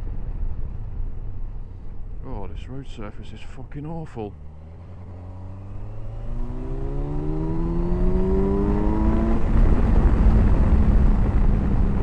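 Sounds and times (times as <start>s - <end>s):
rushing wind: 0.0s - 12.0s
motorcycle engine accelerating: 4.2s - 12.0s.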